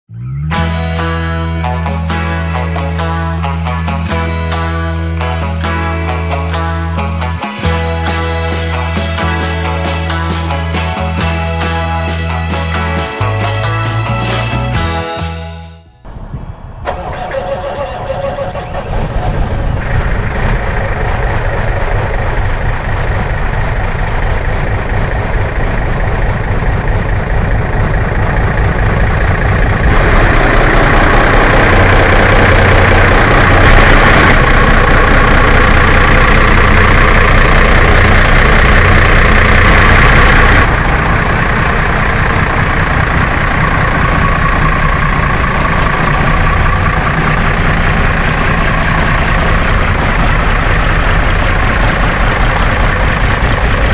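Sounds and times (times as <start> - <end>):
diesel engine idling: 16.2 - 53.9
turbocharger hiss and whine: 16.8 - 53.9.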